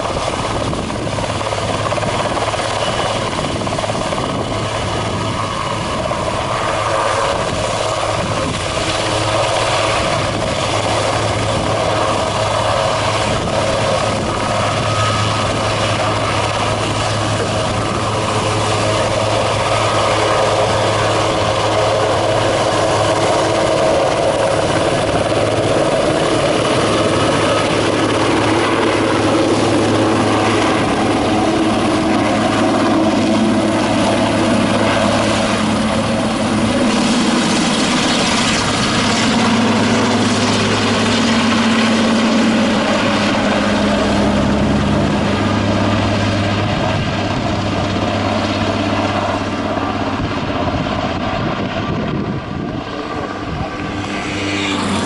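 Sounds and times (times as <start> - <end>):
helicopter rotor and turbine: 0.0 - 55.0.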